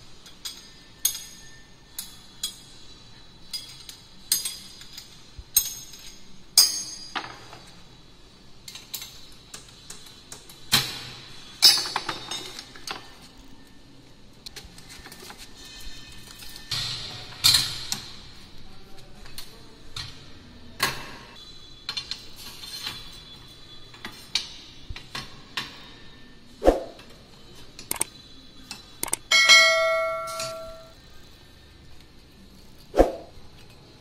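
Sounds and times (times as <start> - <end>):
metallic clanks and clinks: 28.7 - 31.0
bell-like chime: 29.3 - 30.9.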